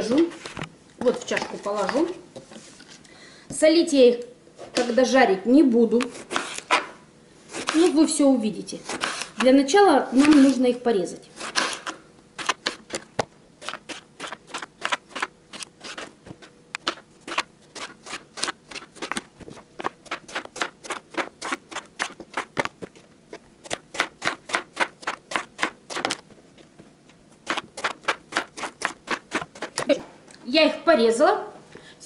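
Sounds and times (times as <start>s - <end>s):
knife slicing eggplant: 7.5s - 8.0s, 8.8s - 9.5s.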